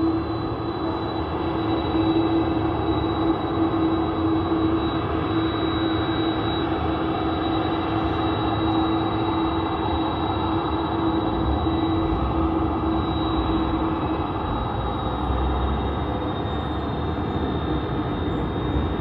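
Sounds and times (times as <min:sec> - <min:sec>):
jet turbine running: 0:00.0 - 0:19.0.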